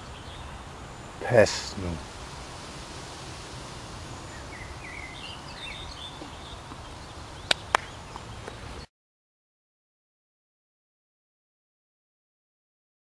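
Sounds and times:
birds chirping: 0.0s - 8.9s
steady low hiss: 0.0s - 8.9s.

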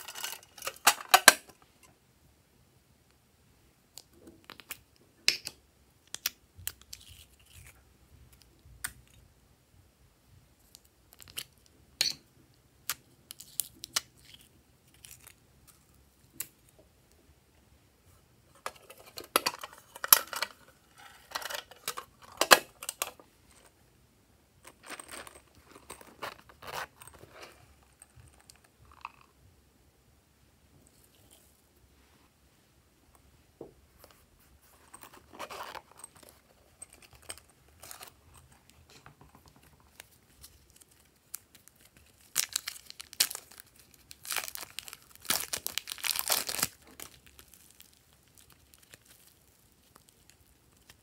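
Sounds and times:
packets crinkling and crackling: 39.8s - 51.0s.

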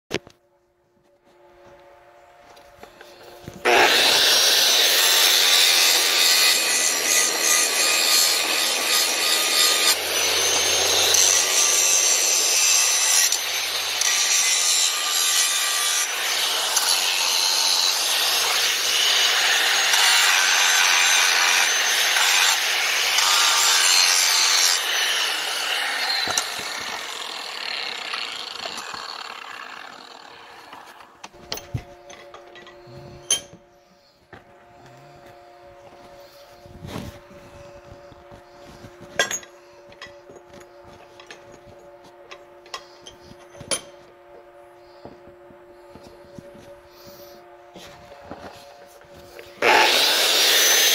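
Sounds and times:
angle grinder grinding metal: 2.9s - 33.6s, 49.2s - 50.9s.

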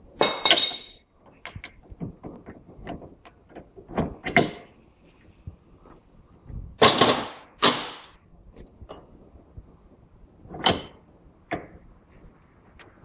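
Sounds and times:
metal tools clanking and scraping: 0.2s - 1.7s.

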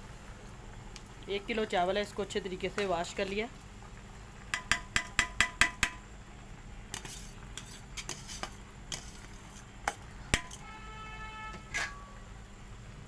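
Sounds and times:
spoon clanking on pot: 4.5s - 6.0s, 9.8s - 10.6s, 11.6s - 12.1s
metal utensils clinking on pot: 9.8s - 10.6s, 11.6s - 12.2s.

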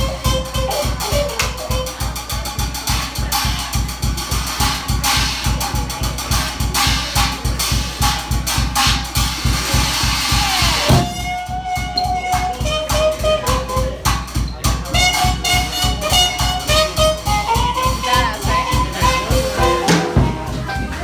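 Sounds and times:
jazz drum kit playing: 0.0s - 21.0s
muted cornet: 0.0s - 21.0s
rhythm guitar: 0.0s - 21.0s
horns playing held notes: 10.5s - 21.0s.

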